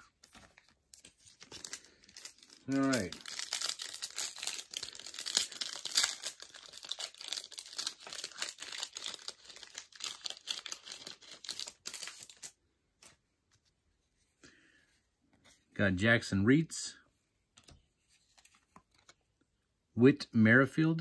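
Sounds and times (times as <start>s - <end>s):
plastic wrapper crinkling and tearing: 0.0s - 12.6s.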